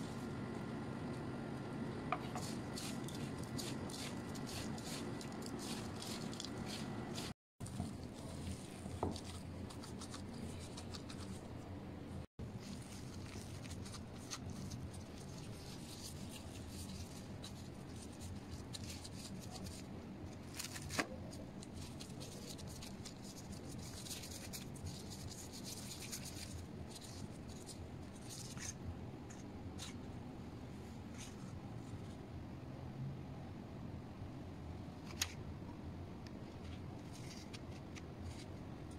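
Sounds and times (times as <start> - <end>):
steady low hum: 0.0 - 20.4
plastic gloves rustling: 2.2 - 11.6, 12.4 - 30.1, 36.4 - 38.9.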